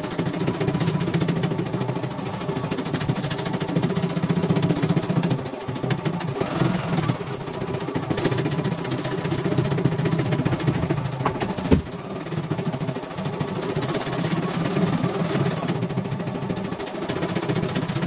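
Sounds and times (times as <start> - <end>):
embroidery machine rattling: 0.0 - 18.0
machine clack: 2.9 - 12.0.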